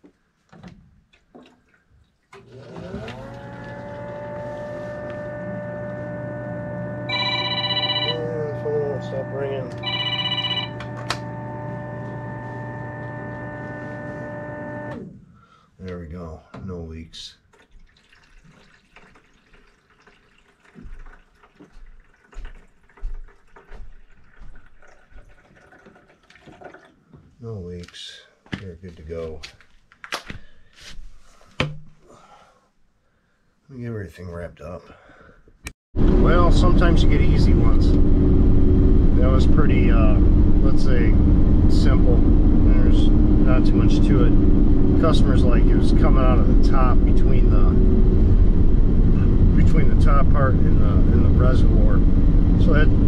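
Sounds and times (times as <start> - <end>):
water splashing into reservoir: 1.1 - 3.4, 17.4 - 27.0
pump motor humming: 2.3 - 15.0, 36.0 - 53.0.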